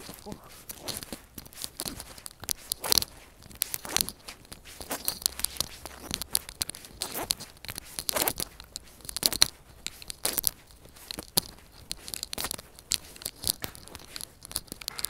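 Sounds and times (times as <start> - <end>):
footsteps crunching on asphalt: 0.0 - 15.0.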